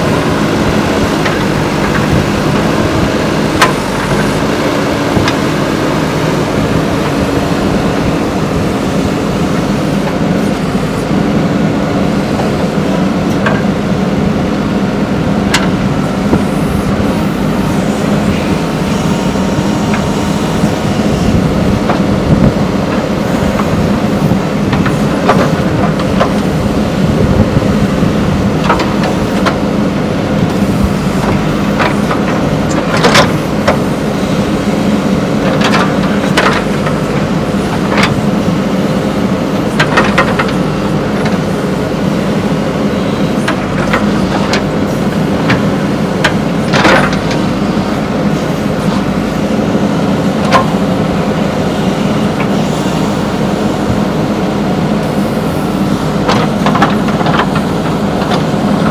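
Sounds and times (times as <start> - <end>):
diesel engine running under load: 0.0 - 58.9
metallic clanks of digger bucket: 39.7 - 41.5, 43.4 - 47.7.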